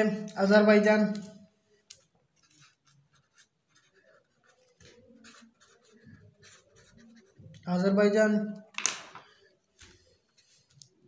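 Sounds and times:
marker scratching on paper: 0:02.4 - 0:07.7.

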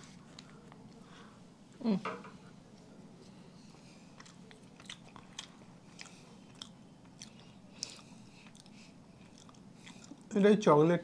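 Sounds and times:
person chewing: 0:03.2 - 0:10.4.

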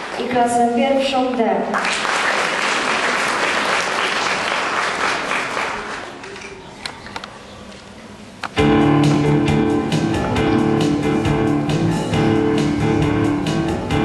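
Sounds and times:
audience applause: 0:01.7 - 0:06.8
instrumental music: 0:08.6 - 0:14.0.

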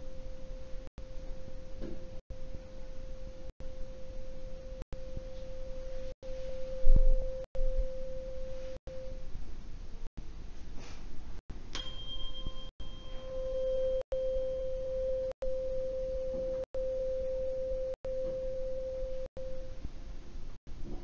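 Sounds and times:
tuning fork tone: 0:00.0 - 0:09.3, 0:11.7 - 0:19.9
tuning fork strike ring: 0:11.7 - 0:19.8.

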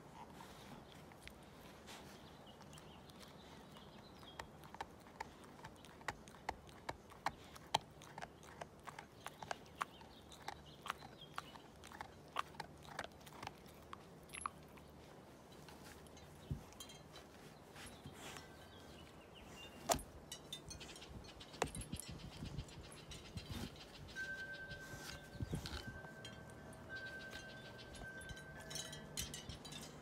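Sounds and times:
dog chewing toy: 0:03.0 - 0:18.6.

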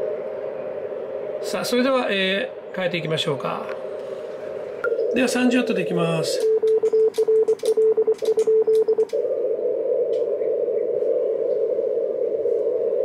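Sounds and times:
radio receiver hiss: 0:00.0 - 0:13.0
morse code beeps: 0:06.3 - 0:09.1.

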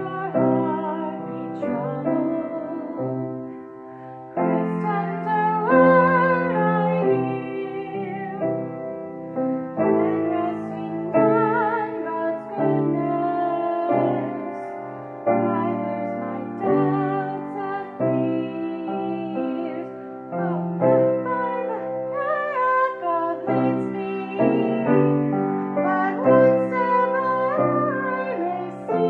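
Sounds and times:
woman singing with vibrato: 0:00.0 - 0:09.1, 0:09.7 - 0:29.0
grand piano chords: 0:00.0 - 0:29.0.

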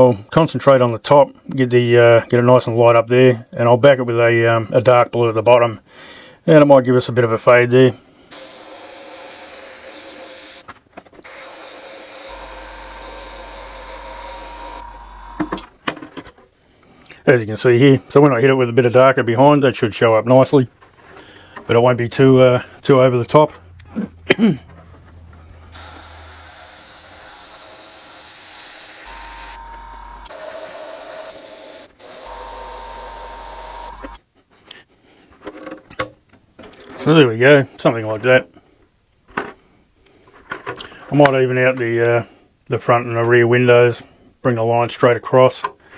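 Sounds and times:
airbrush spraying hiss: 0:08.3 - 0:10.6, 0:11.3 - 0:15.0, 0:25.7 - 0:34.1
low steady hum: 0:12.3 - 0:15.7, 0:29.1 - 0:30.4.

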